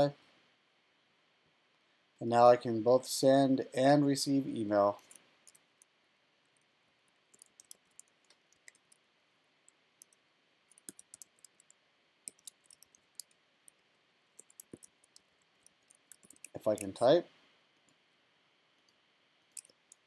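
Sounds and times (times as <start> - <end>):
keyboard keys clicking: 7.3 - 9.0, 10.0 - 11.7, 12.3 - 13.4, 14.4 - 17.0, 19.5 - 20.0.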